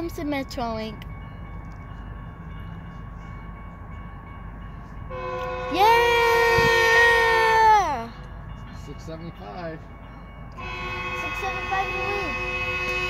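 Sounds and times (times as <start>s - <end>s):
train air horn chord: 5.1s - 7.5s, 10.6s - 13.0s.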